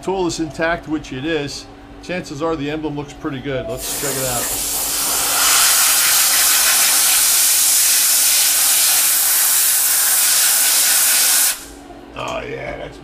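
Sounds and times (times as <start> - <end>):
compressed air blow gun hissing: 3.8 - 11.8.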